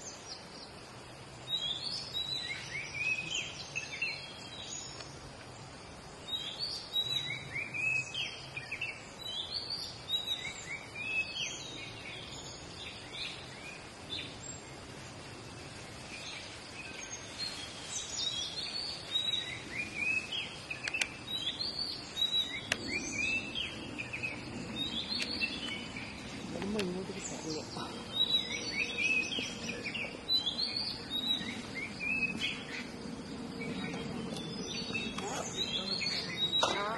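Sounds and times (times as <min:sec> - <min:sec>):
background hiss: 0:00.0 - 0:36.9
birds whistling: 0:16.2 - 0:36.9.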